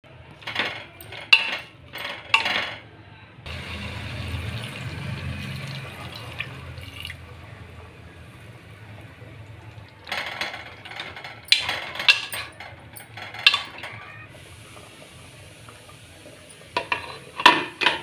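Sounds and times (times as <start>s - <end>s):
metal spoon clinking on pot: 0.4s - 2.8s, 10.1s - 13.9s
water pouring into pot: 3.5s - 7.8s.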